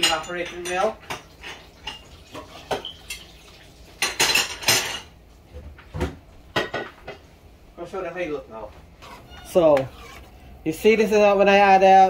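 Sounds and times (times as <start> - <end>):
metal kitchenware clinking: 0.0 - 3.3, 4.0 - 5.1.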